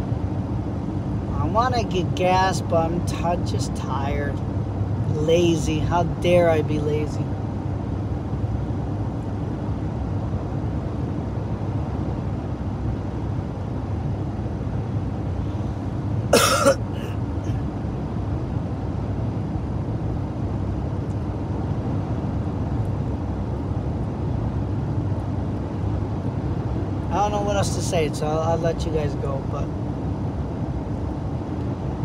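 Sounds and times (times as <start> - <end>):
car road and engine noise: 0.0 - 32.0
man coughing: 16.3 - 17.6.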